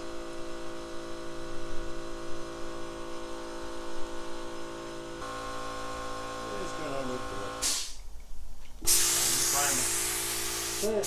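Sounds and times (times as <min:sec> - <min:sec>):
machine hum: 0:00.0 - 0:07.7.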